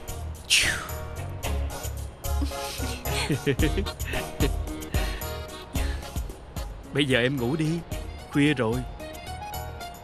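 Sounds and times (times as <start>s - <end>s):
music with steady beat: 0.0s - 7.0s.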